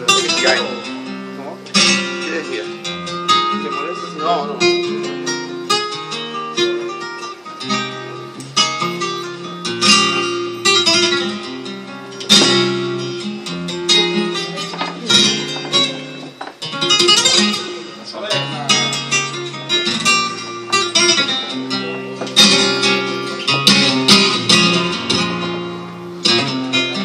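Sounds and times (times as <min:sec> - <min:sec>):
flamenco guitar: 0:00.0 - 0:27.0.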